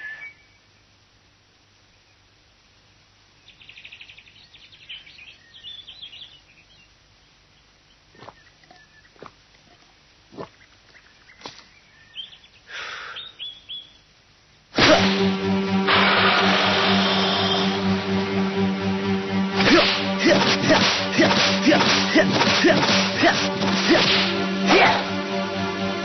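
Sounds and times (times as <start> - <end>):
birds chirping: 0.0 - 1.0, 3.2 - 14.2
short rushing noise: 14.8 - 18.2.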